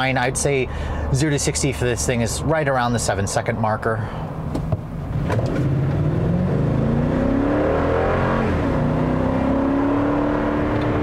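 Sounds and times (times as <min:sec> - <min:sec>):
engine accelerating hard: 0:05.2 - 0:11.0.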